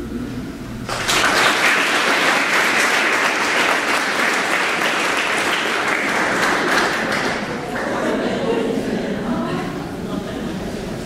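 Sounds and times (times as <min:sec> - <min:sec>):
audience applauding: 0:00.9 - 0:08.2.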